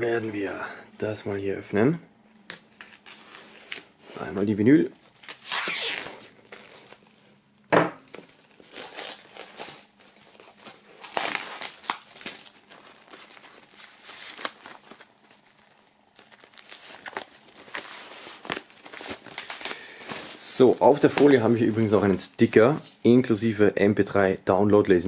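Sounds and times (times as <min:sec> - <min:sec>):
plastic shrink-wrap crinkling and tearing: 0:05.0 - 0:07.4, 0:08.1 - 0:23.0.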